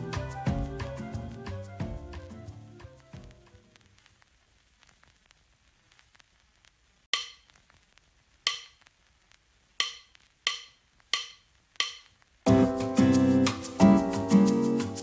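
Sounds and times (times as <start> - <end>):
sharp percussion strikes: 9.8 - 15.0.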